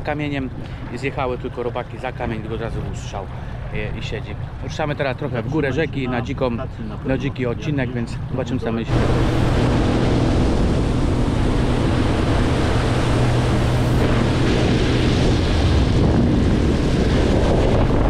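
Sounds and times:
outboard motor engine: 0:00.0 - 0:18.0
rushing water: 0:00.0 - 0:18.0
wind noise on microphone: 0:05.6 - 0:18.0.

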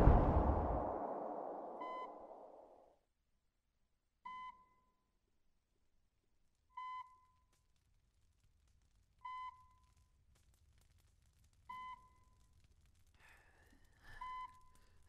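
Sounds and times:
explosion rumbling: 0:00.0 - 0:02.6.

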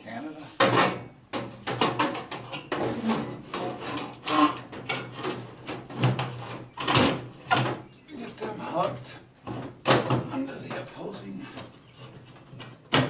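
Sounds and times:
sheet metal cover scraping: 0:00.5 - 0:07.8.

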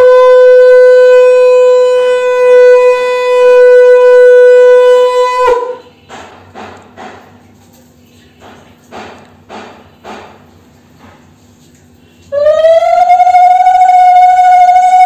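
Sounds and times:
conch shell blown: 0:00.0 - 0:05.9, 0:12.3 - 0:15.0.

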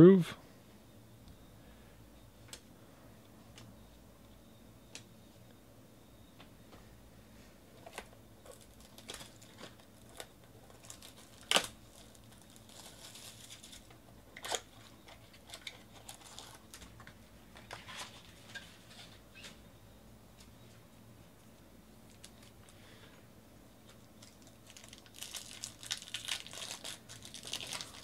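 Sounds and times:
plastic wrapper crinkling: 0:07.8 - 0:18.5, 0:23.8 - 0:28.0
wrapper clicks and snaps: 0:08.0 - 0:14.7, 0:24.0 - 0:28.0.

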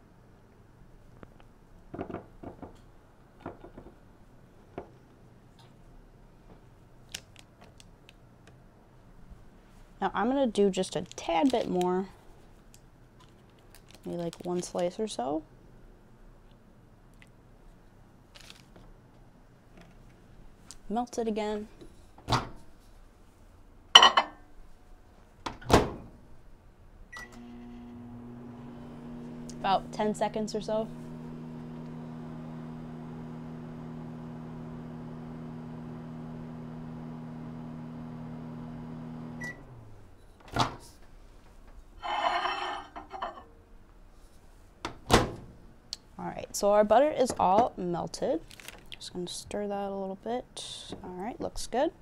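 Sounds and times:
microwave oven humming: 0:27.1 - 0:40.2.

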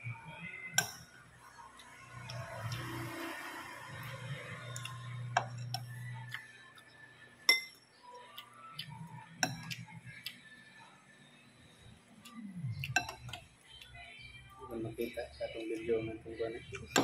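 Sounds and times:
cutlery clinking on ceramic bowls: 0:07.5 - 0:07.9, 0:12.9 - 0:13.4.

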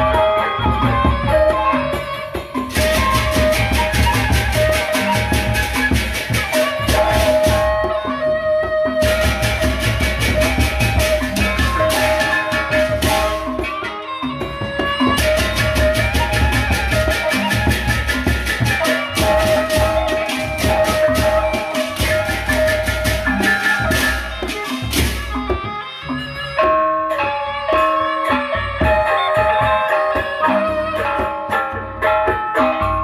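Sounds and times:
metallophone and gong notes: 0:00.0 - 0:08.3, 0:09.0 - 0:33.0
barrel drums: 0:00.0 - 0:26.8, 0:27.8 - 0:33.0
hand cymbals clashing: 0:01.9 - 0:07.8, 0:09.1 - 0:25.4.

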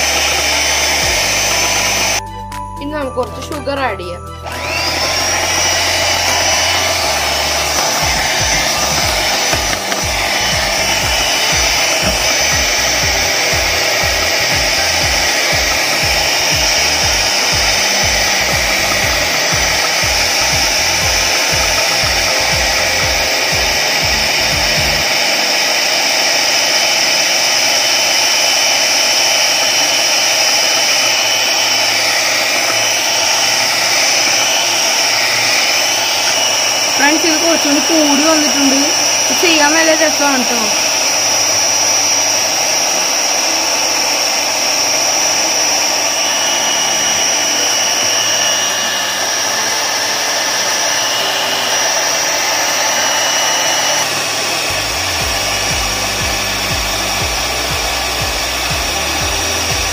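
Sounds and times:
electric hand mixer whining: 0:00.0 - 0:59.9
low pulsing: 0:04.4 - 0:25.2.

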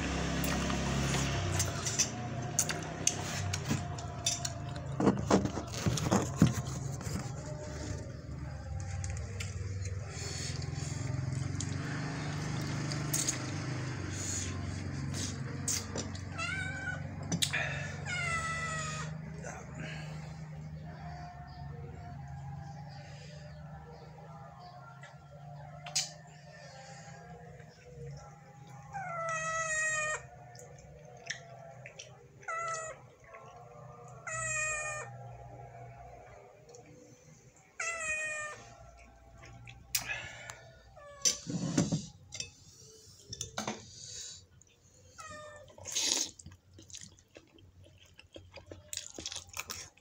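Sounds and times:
cat meowing: 0:16.3 - 0:19.2, 0:28.9 - 0:30.4, 0:34.0 - 0:35.1, 0:37.8 - 0:38.8.

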